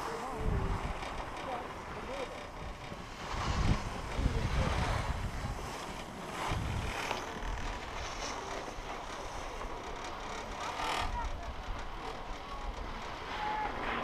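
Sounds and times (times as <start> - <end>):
wind buffeting microphone: 0.0 - 9.3.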